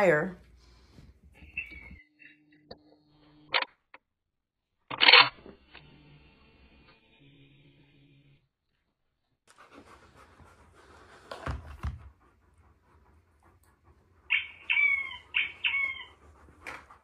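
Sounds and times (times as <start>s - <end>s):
dog whining: 14.2s - 17.0s.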